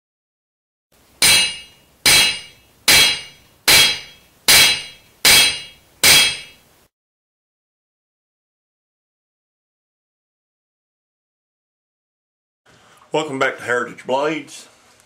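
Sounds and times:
hammer blows on metal: 1.2 - 6.6.

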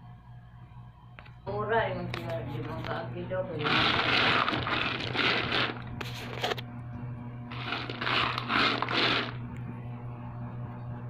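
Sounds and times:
steady low hum: 0.0 - 11.0
peanuts scraping and rattling in pan: 3.6 - 6.5, 7.5 - 9.4.

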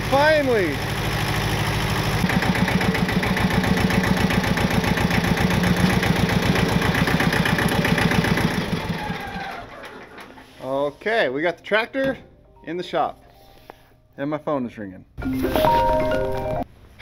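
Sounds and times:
tractor diesel engine running: 0.0 - 10.6.

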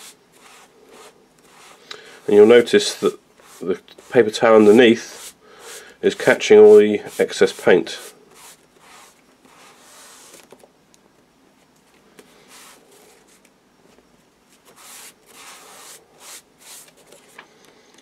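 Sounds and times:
cloth wiping swishes: 0.0 - 10.4.

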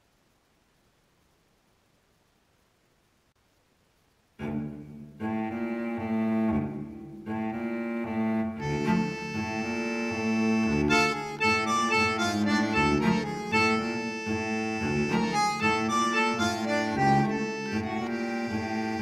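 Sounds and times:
melody over low held note: 8.6 - 19.0.

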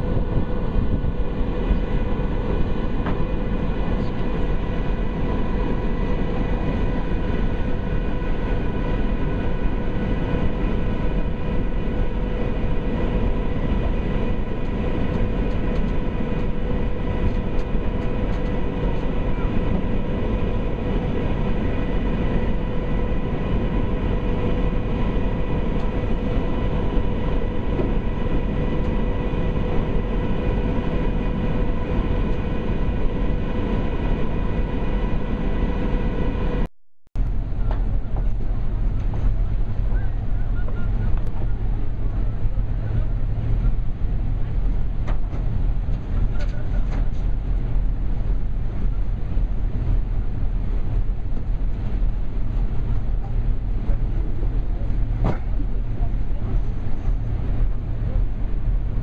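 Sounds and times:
rushing wind and water: 0.0 - 36.6
ferry machinery drone: 0.0 - 59.0.

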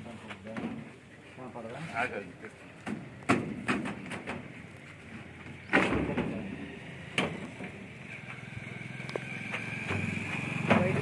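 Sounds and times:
knocks and clatter of parts: 2.8 - 4.6
loud thud: 5.7 - 6.5.

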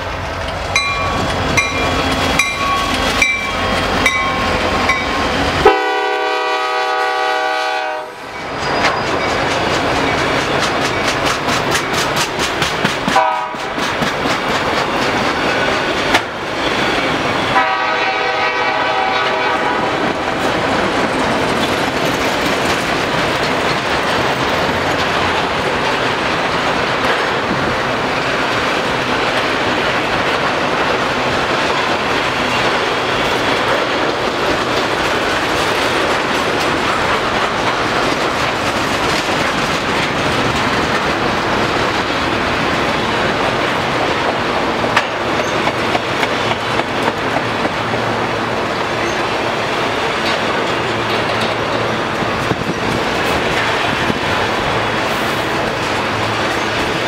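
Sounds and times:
freight train rumbling: 0.0 - 57.0
wheels clacking on rails: 0.0 - 57.0
train bell ringing: 0.7 - 5.4, 8.2 - 11.2
locomotive horn blast: 5.6 - 8.3, 13.1 - 13.7, 17.5 - 20.1.

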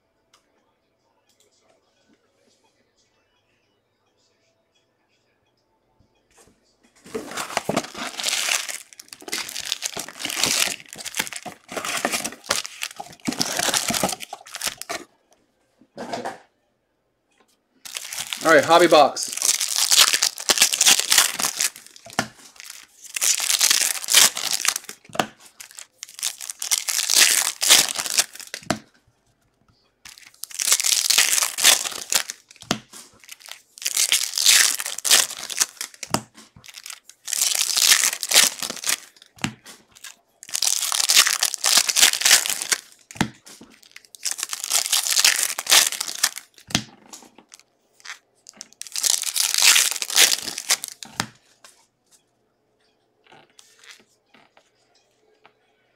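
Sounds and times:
wrapper tearing and crinkling: 7.1 - 15.0, 17.8 - 28.8, 30.1 - 39.3, 40.0 - 46.8, 47.5 - 51.2.

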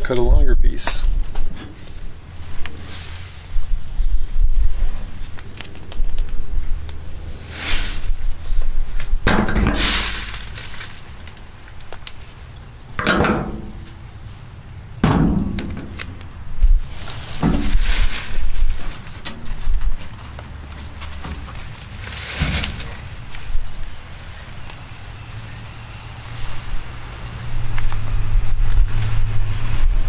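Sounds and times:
tape crinkling: 3.6 - 7.1, 9.9 - 12.7, 15.5 - 29.2
tape pulled off roll: 15.4 - 23.6.

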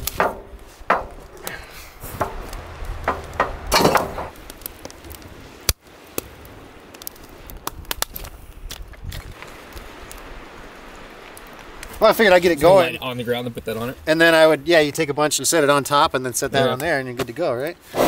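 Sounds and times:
firewood clattering into metal pit: 0.0 - 4.9.

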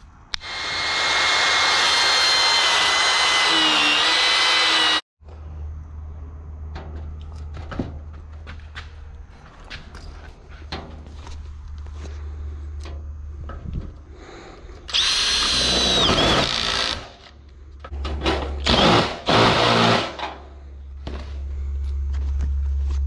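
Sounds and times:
cordless drill driving screws: 0.4 - 5.0, 14.9 - 17.2.

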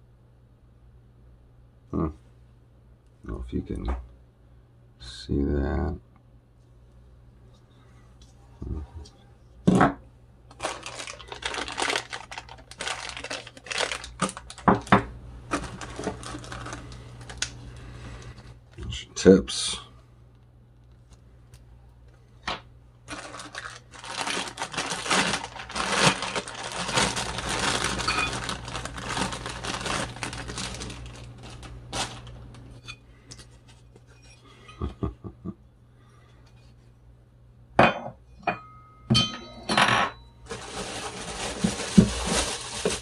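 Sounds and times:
plastic packaging crinkling: 10.5 - 18.4, 23.0 - 33.7, 40.4 - 43.0.

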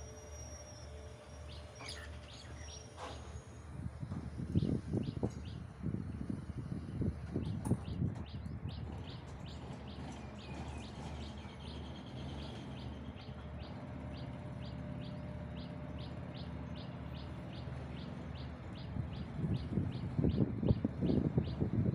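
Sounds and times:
train rumbling: 0.0 - 21.9
bird chirping: 1.5 - 2.9.

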